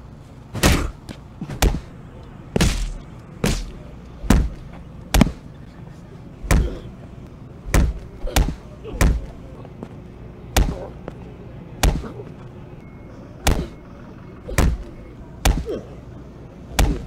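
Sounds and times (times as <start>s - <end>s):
wooden stick striking a person: 2.6s - 5.4s, 15.4s - 15.7s, 16.8s - 17.0s.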